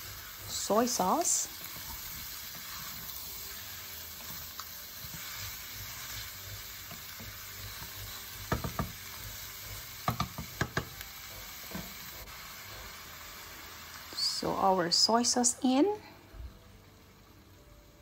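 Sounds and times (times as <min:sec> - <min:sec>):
wooden spoon stirring: 0:00.0 - 0:11.9
pork sizzling in a pan: 0:00.0 - 0:18.0.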